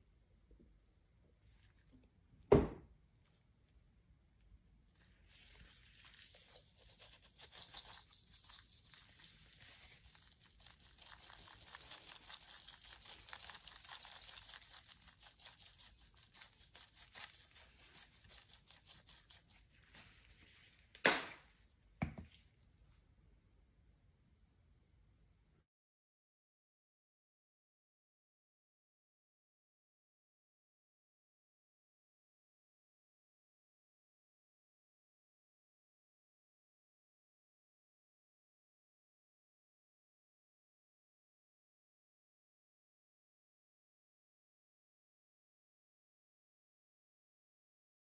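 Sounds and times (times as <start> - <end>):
loud thump: 2.5 - 2.8
seasoning shaker rattle: 5.1 - 20.7.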